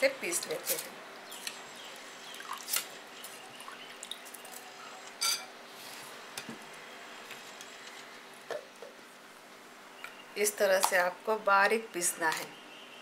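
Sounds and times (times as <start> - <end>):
wet scooping and dripping: 2.3 - 2.8.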